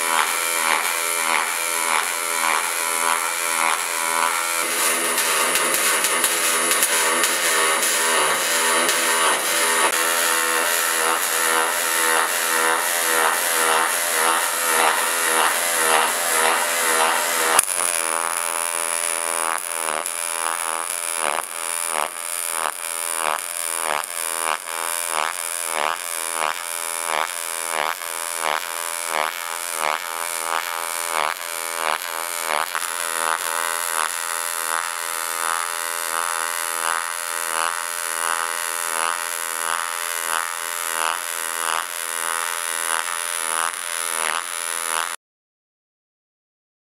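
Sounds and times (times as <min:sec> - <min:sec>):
welding arc buzzing: 0:00.0 - 0:45.2
welder click: 0:00.1 - 0:25.4, 0:29.4 - 0:34.3.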